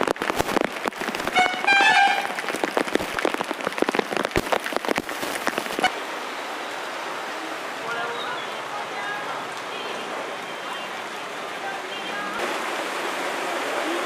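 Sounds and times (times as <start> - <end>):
heavy rain hiss: 0.0 - 14.0
vehicle horn: 1.4 - 2.4.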